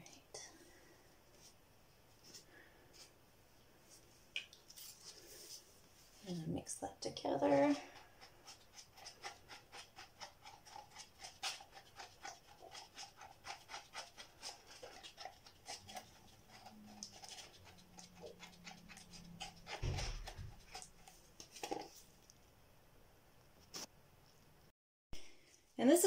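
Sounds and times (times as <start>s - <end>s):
rhythmic scraping stirring in cup: 6.2s - 22.1s.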